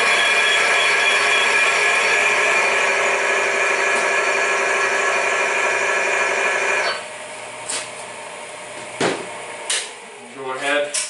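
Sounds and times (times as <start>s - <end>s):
electric motor spinning bearing: 0.0s - 7.1s.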